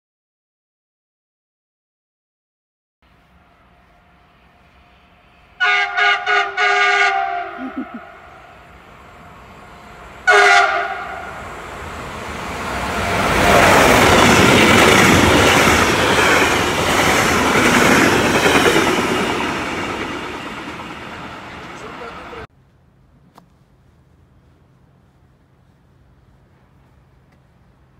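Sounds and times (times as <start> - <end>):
train horn blasts: 3.4 - 7.6, 8.4 - 11.5
train wheels rumbling on rails: 7.1 - 22.5.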